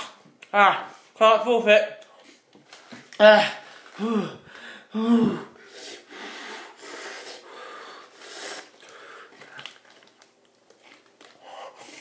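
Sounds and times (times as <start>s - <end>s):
heavy hissing breaths: 4.5s - 9.5s
small crackles: 8.7s - 11.4s.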